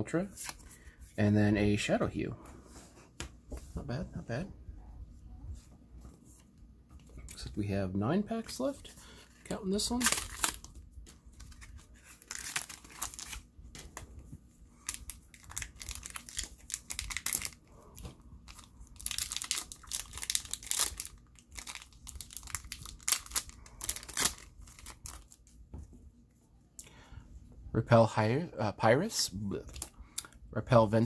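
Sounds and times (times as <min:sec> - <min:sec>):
plastic wrapper tearing and crinkling: 0:09.4 - 0:13.5, 0:14.8 - 0:17.7, 0:18.4 - 0:25.5.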